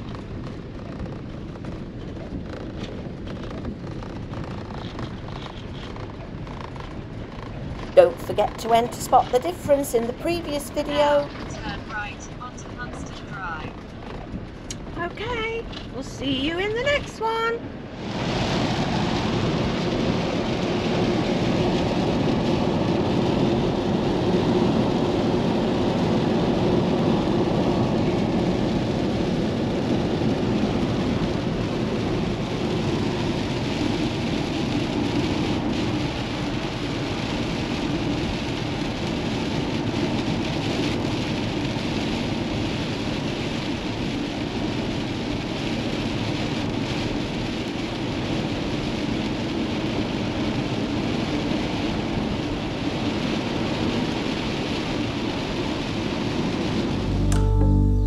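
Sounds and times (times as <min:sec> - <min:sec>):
rain on vehicle body: 0:00.0 - 0:57.2
engine drone: 0:04.3 - 0:16.2, 0:55.7 - 0:58.0.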